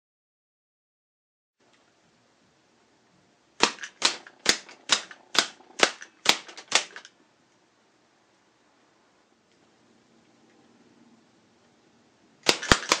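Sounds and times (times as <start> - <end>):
rubber band pistol clacks: 3.6 - 7.2, 12.4 - 13.0.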